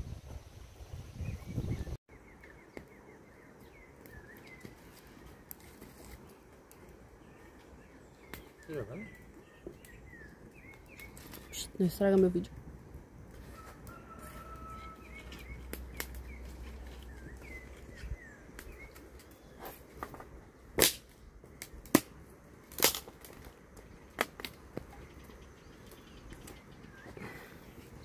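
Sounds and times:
small birds chirping: 1.2s - 12.6s, 13.8s - 20.2s, 23.8s - 28.0s.

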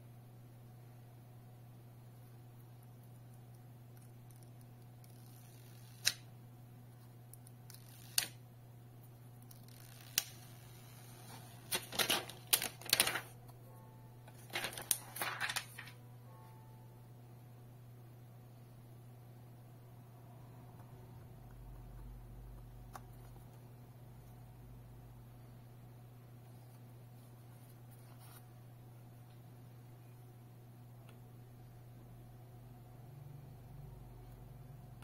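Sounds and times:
plastic film crackling: 9.5s - 13.4s, 14.3s - 16.0s.

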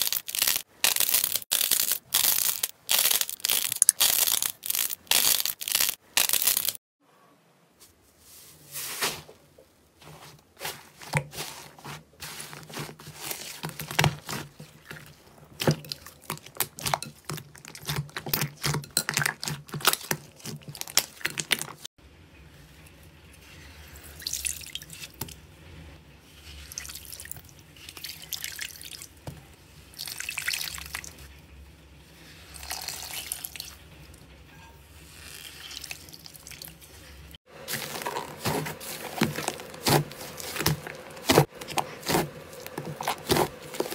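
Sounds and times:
slime popping and squelching: 0.0s - 6.8s, 15.6s - 21.8s, 37.7s - 43.9s.

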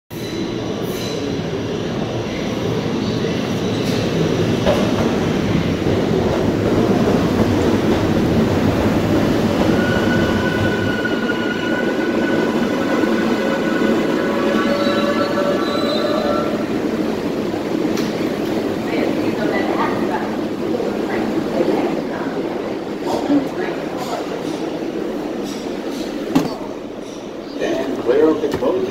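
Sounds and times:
subway train rumbling: 0.1s - 28.9s
high-pitched squealing tones: 9.6s - 16.9s.

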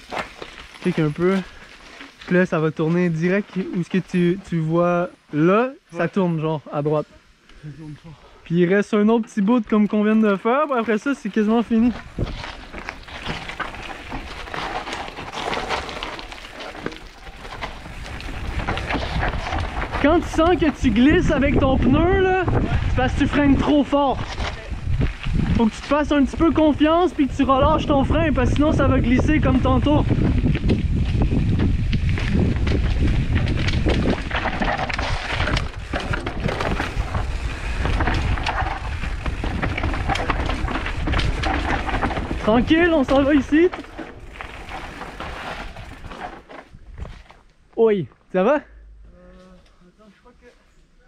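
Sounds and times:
bike tyres crunching over rocks: 0.0s - 5.6s, 8.6s - 48.6s
bike clicks and rattles: 9.7s - 47.7s
wind rumble on microphone: 11.6s - 16.2s, 17.4s - 47.3s.

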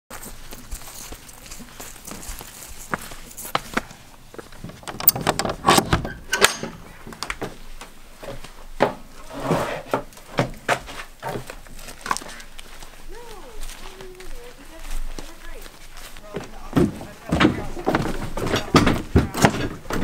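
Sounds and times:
wooden knocks and clatters: 4.6s - 7.6s, 16.4s - 20.0s
wooden shed door opening: 4.6s - 7.6s, 16.7s - 20.0s.

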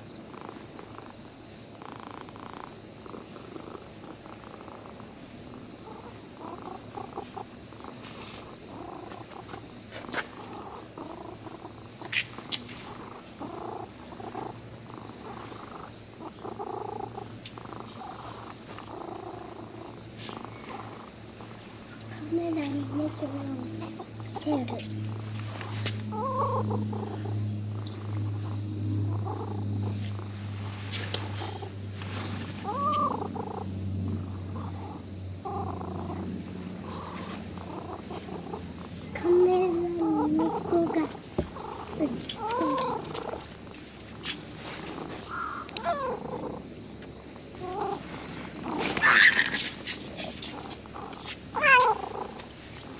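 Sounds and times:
cat purring: 0.3s - 1.1s, 1.8s - 5.0s, 5.8s - 11.9s, 12.8s - 21.6s, 26.1s - 33.6s, 34.2s - 36.2s, 36.8s - 43.4s, 45.8s - 46.6s
cat call rising and falling: 48.9s - 49.7s.

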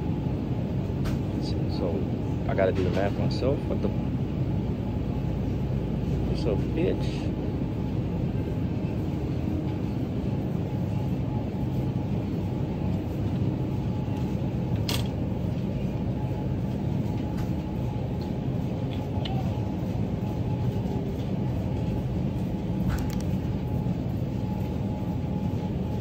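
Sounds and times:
supermarket background rumble: 0.0s - 26.0s.

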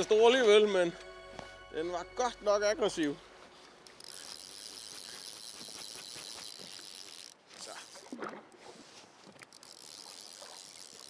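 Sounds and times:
fly reel ratcheting: 3.8s - 8.1s, 9.4s - 11.0s.

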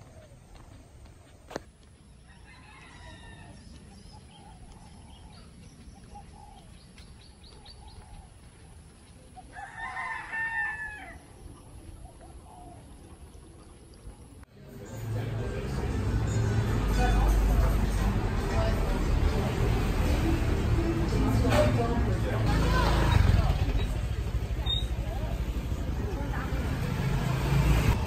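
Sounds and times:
rooster crowing: 2.3s - 3.7s, 9.5s - 11.2s.

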